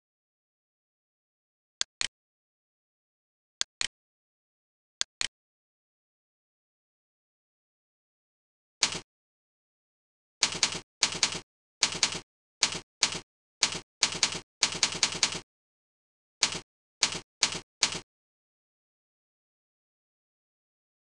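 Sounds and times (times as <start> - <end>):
keyboard keys clicking: 10.4 - 15.4, 16.4 - 18.0.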